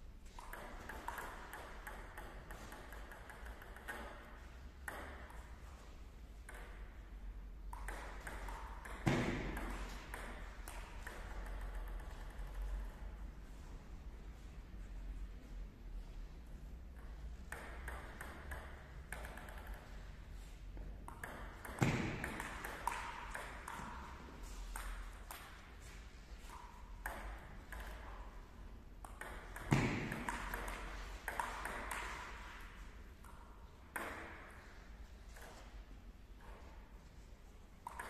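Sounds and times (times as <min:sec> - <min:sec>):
table tennis ball clicking: 0:00.3 - 0:05.4, 0:07.6 - 0:13.1, 0:17.5 - 0:20.0, 0:21.0 - 0:24.0, 0:29.0 - 0:32.4.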